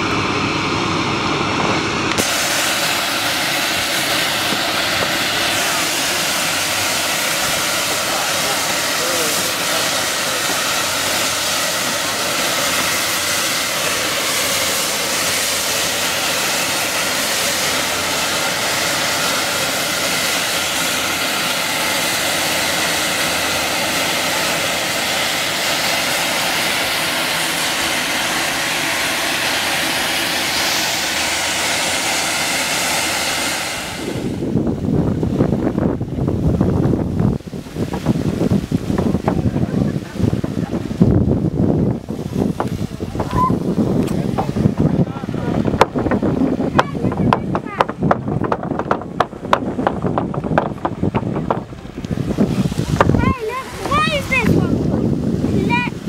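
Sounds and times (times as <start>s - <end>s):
steam hissing from vents: 0.0s - 56.0s
wind rumble on microphone: 33.6s - 56.0s.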